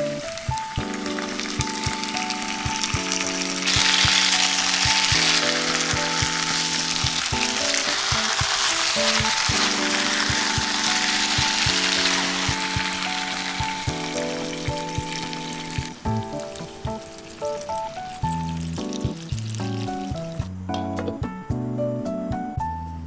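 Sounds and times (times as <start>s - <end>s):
meat sizzling in hot oil: 0.0s - 20.4s
background music with steady beat: 0.0s - 23.0s.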